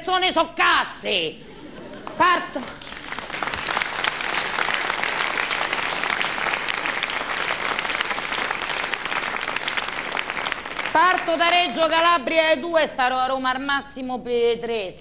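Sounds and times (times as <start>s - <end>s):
audience applauding: 1.9s - 11.8s.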